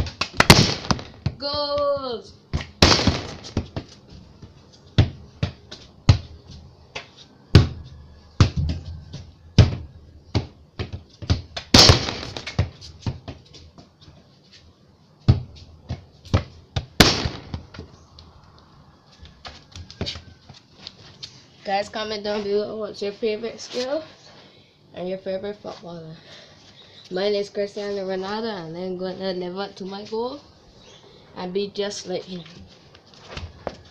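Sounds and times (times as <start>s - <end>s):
football kicked against concrete walls: 0.0s - 13.4s, 15.2s - 17.9s.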